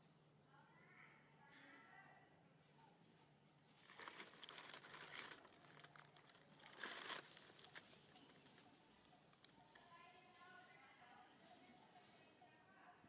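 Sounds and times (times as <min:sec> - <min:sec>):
faint crinkling rustle: 0:02.7 - 0:12.3.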